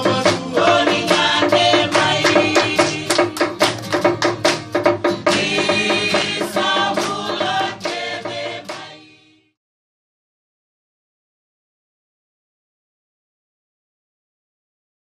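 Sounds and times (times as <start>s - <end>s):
group of voices singing: 0.0s - 4.0s, 5.1s - 9.6s
sharp percussive strokes: 0.0s - 9.2s
strummed acoustic guitar: 0.0s - 9.2s.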